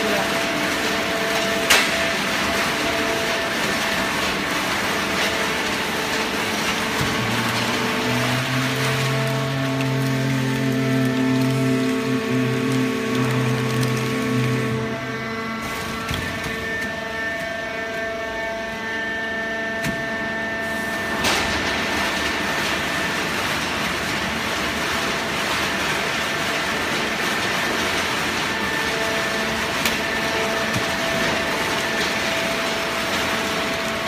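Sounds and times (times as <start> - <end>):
baler machine drone: 2.6 - 24.4.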